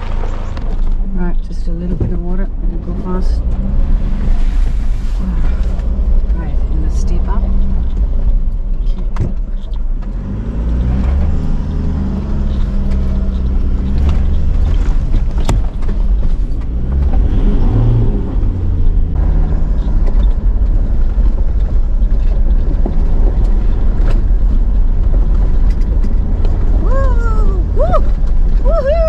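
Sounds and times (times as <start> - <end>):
vehicle knocking and rattling: 0.0 - 27.4
off-road vehicle engine under load: 0.0 - 29.0.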